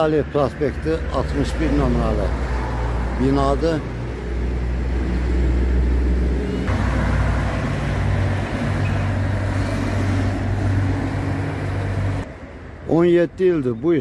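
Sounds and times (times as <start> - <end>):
cars driving past: 0.0 - 13.3
truck engine humming: 1.2 - 12.3.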